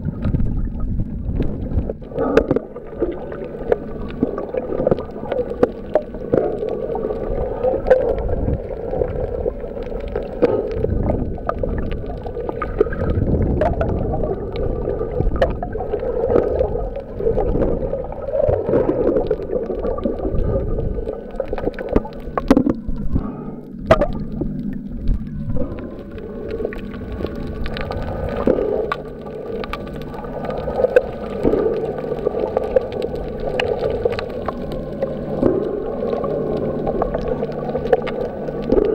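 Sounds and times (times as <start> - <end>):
clicks and knocks underwater: 0.0 - 38.9
muffled underwater water sloshing: 0.0 - 38.9.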